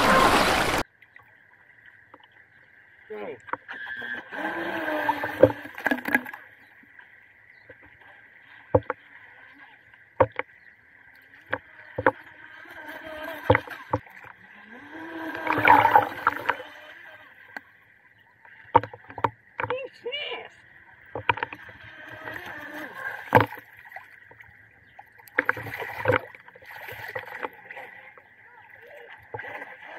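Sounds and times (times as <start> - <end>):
rc boat motor whine: 3.6 - 5.8, 10.6 - 18.4.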